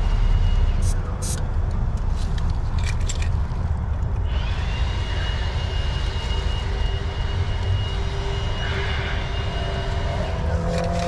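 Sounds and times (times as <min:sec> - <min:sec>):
low engine rumble: 0:00.0 - 0:11.0
thin high whine: 0:04.2 - 0:11.0.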